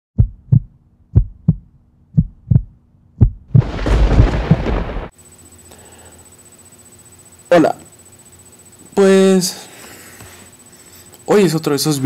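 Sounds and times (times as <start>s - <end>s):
heartbeat-like double thumps: 0.2s - 5.1s
loud rumbling noise: 3.5s - 5.1s.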